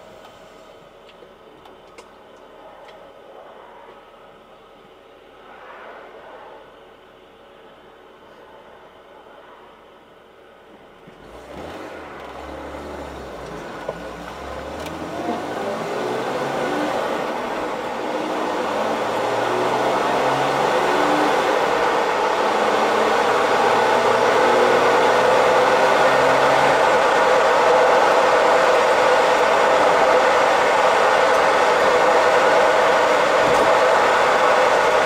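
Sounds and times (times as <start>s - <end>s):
car engine accelerating: 11.0s - 35.0s.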